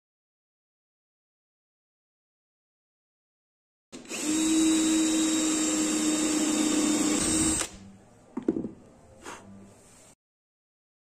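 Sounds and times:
drill cutting into wood: 4.0 - 7.8.

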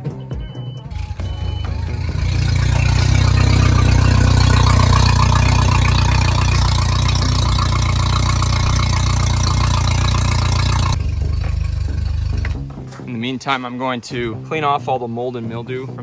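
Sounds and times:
outboard motor idling: 0.9 - 12.8.

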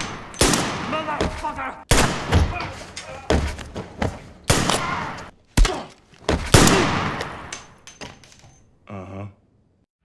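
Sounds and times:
rifle gunshots with echo: 0.0 - 1.1, 6.5 - 7.5.

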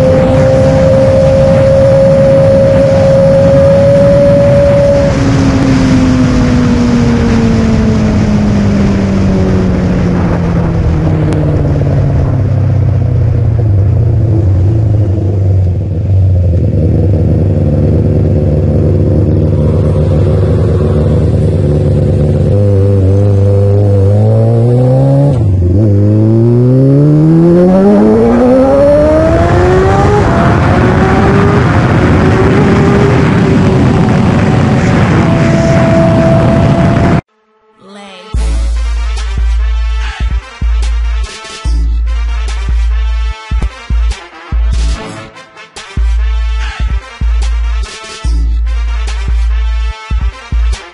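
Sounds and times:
motorcycle engine revving: 0.0 - 37.3.

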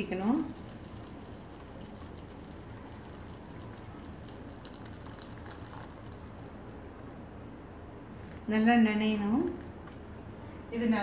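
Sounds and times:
water pouring into metal pot: 0.0 - 6.7.

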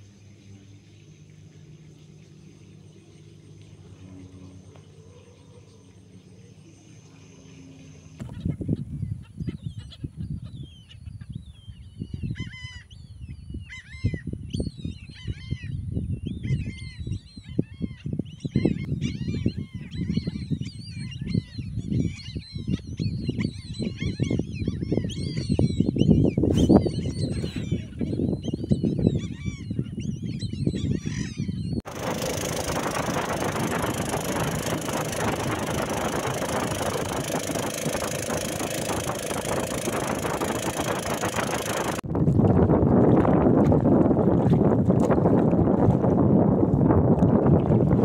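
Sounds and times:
flock of waterbirds calling: 0.0 - 13.1, 16.4 - 42.0
wind rumbling on microphone: 7.9 - 48.0.

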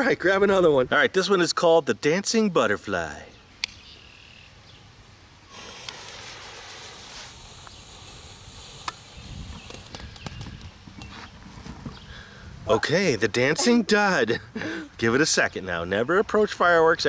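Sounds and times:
ground firework hissing: 5.5 - 10.7
small crackles: 5.5 - 12.1.

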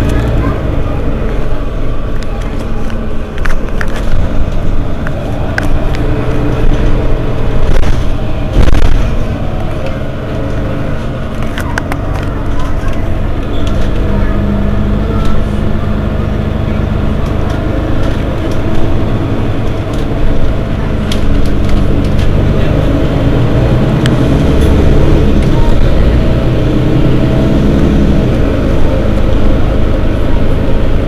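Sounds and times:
bus engine idling: 0.0 - 31.0.

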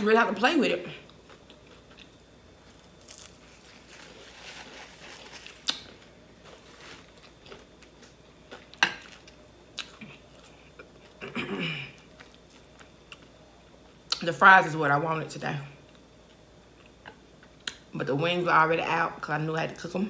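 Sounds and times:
person chewing food: 1.0 - 11.2, 11.9 - 13.4, 15.8 - 17.8.

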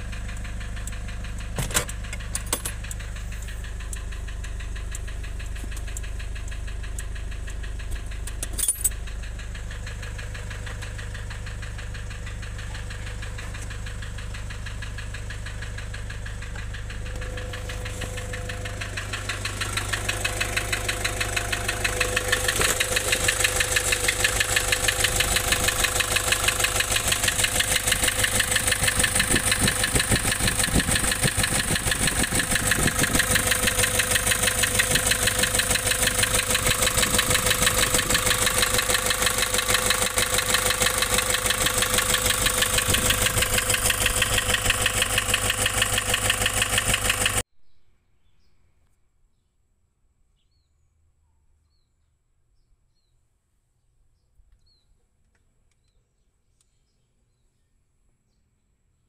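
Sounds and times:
diesel engine idling roughly: 0.0 - 47.4.

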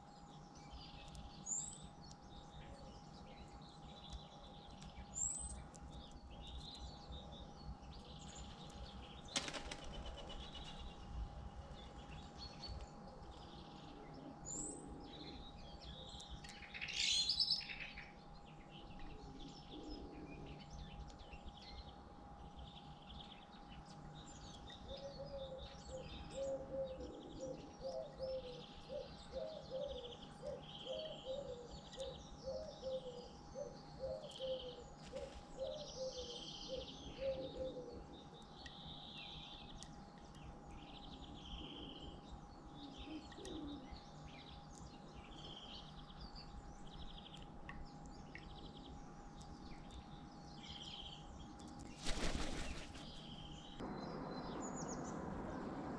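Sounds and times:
small birds chirping: 0.0 - 55.9
crow wingbeats: 51.9 - 53.2.

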